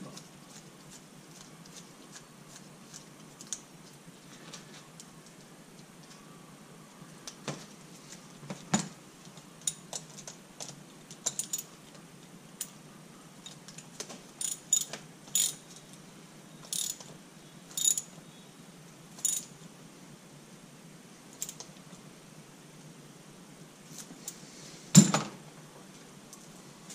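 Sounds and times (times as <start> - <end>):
ratchet wrench clicking: 14.4 - 15.6, 16.7 - 17.0, 17.8 - 18.1, 19.2 - 19.5.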